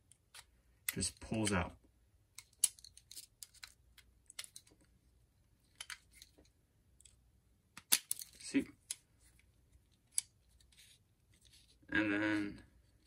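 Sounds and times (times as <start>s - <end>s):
small metal parts clicking and rattling: 2.4s - 4.9s, 7.8s - 9.0s.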